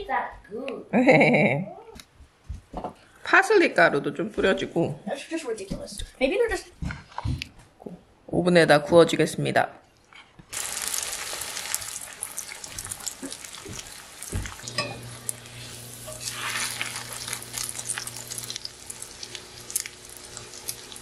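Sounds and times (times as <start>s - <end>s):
cutlet sizzling in oil: 10.5s - 21.0s
tongs knocking against pan: 13.2s - 15.0s.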